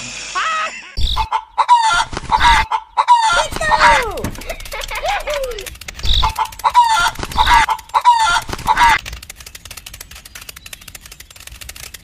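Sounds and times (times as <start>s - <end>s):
fine clicking: 3.4s - 12.0s.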